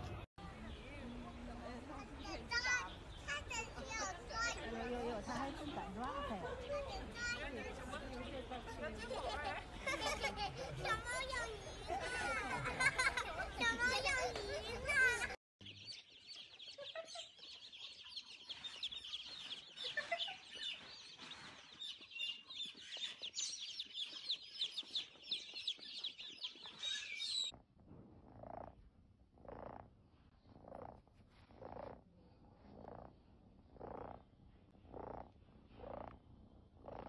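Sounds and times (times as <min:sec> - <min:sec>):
baby chicks peeping: 0:15.6 - 0:27.5
kitten purring: 0:27.6 - 0:37.0.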